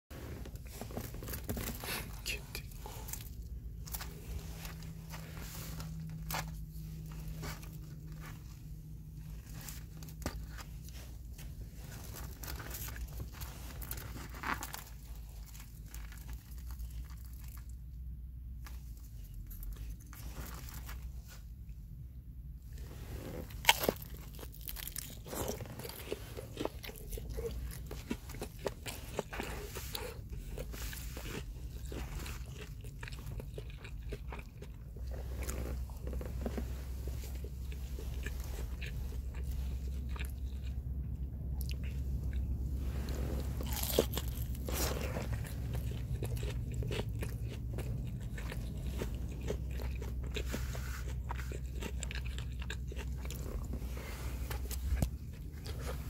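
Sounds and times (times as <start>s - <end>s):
crunching and chewing food: 0.1s - 56.0s
steady low hum: 0.1s - 56.0s.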